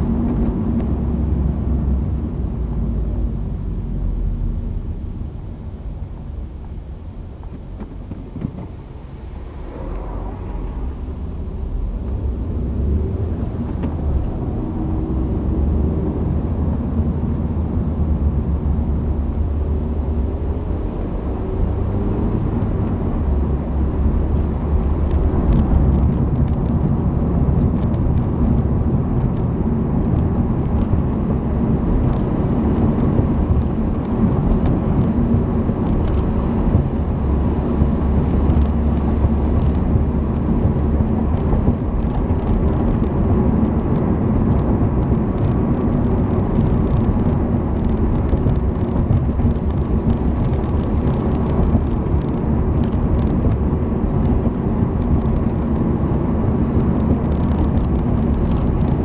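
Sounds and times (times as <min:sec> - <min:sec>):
car engine and road noise: 0:00.0 - 0:59.0
faint light ticks: 0:32.0 - 0:36.5, 0:38.5 - 0:39.8, 0:40.7 - 0:55.7, 0:57.0 - 0:59.0.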